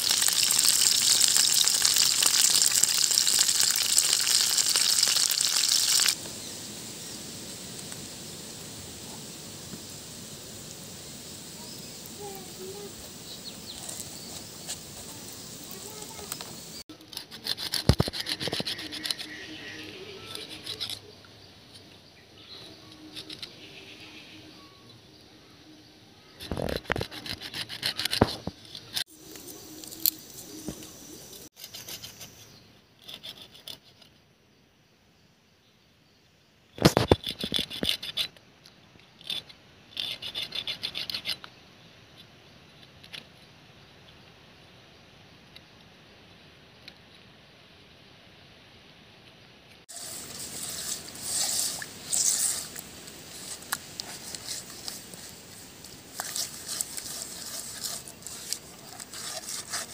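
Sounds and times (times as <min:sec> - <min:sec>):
knife scraping fish scales: 0:17.0 - 0:19.5, 0:20.1 - 0:21.1, 0:26.4 - 0:29.0, 0:31.6 - 0:32.4, 0:33.0 - 0:34.1, 0:39.2 - 0:41.5, 0:49.9 - 0:59.9.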